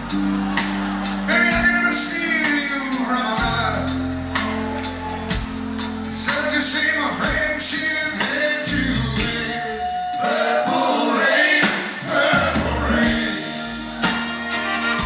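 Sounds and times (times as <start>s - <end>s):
live rock band playing: 0.0s - 10.2s, 11.7s - 15.0s
man singing: 1.3s - 3.9s, 6.1s - 10.3s.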